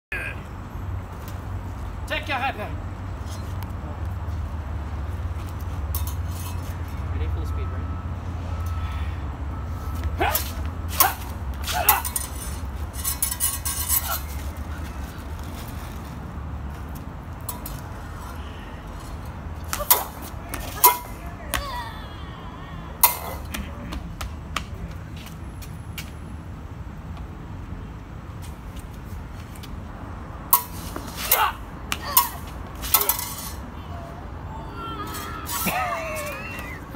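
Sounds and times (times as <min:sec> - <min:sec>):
fencing blades clinking: 0:05.4 - 0:07.0, 0:10.2 - 0:14.7, 0:16.9 - 0:21.2, 0:23.0 - 0:23.6, 0:30.5 - 0:33.7, 0:35.0 - 0:36.8.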